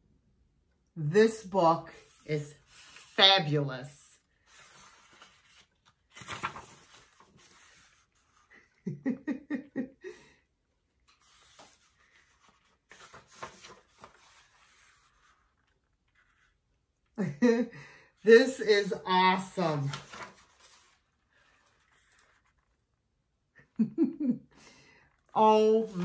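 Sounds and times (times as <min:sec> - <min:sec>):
book pages rustling: 0:04.3 - 0:08.6, 0:11.0 - 0:16.8, 0:19.4 - 0:23.1, 0:25.5 - 0:26.0
woman laughing softly: 0:08.4 - 0:10.5, 0:17.2 - 0:18.0, 0:23.5 - 0:24.6.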